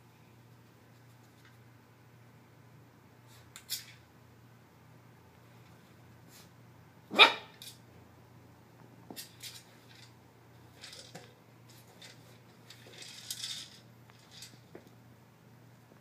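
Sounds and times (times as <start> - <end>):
small dog barking: 7.1 - 7.6.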